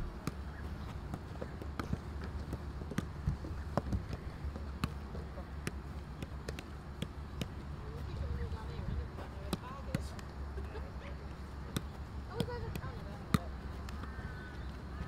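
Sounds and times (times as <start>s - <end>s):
football taps and thuds: 0.0s - 10.3s, 11.3s - 14.2s
steady low rumble: 0.0s - 15.0s.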